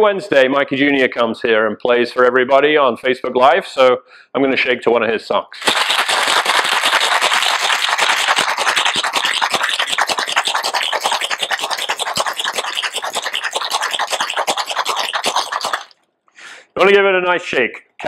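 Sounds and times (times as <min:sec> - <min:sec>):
ice rattling in cocktail shaker: 0:05.6 - 0:16.0.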